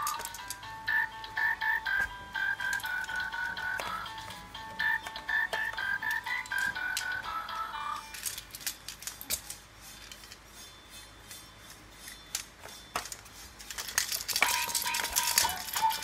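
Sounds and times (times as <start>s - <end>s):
electronic toy melody: 0.0s - 8.3s, 14.4s - 16.0s
plastic toy clicks and clacks: 0.0s - 10.4s, 12.0s - 16.0s.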